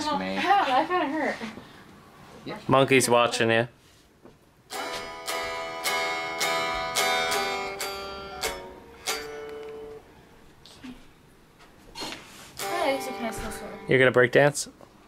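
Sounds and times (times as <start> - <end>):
plucked acoustic guitar: 4.7 - 10.0, 12.6 - 14.2.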